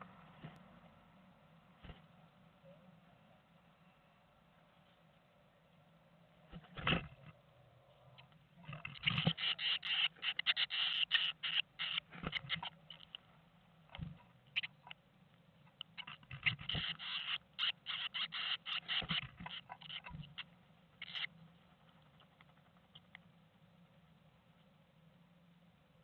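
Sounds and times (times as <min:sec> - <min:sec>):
birds scratching and rustling nest: 0:06.5 - 0:07.4, 0:08.6 - 0:13.2, 0:15.7 - 0:23.1.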